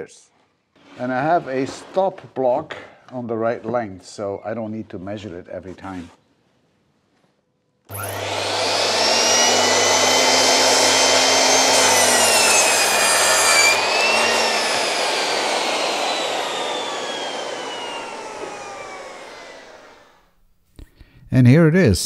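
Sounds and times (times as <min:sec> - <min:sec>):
saw cutting through wood: 0:07.9 - 0:20.2
miter saw motor whining: 0:07.9 - 0:20.3.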